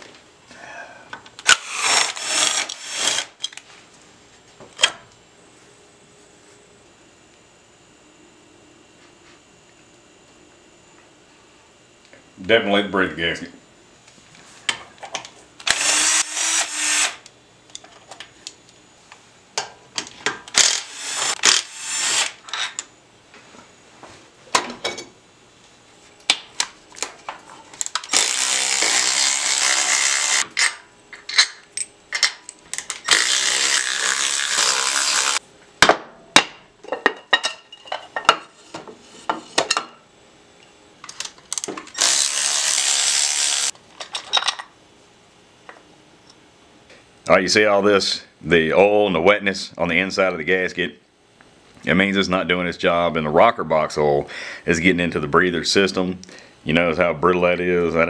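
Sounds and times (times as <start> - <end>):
cordless power tools running: 1.4 - 3.3, 15.6 - 17.3, 20.5 - 22.4, 28.0 - 30.5, 33.0 - 35.4, 42.0 - 43.7.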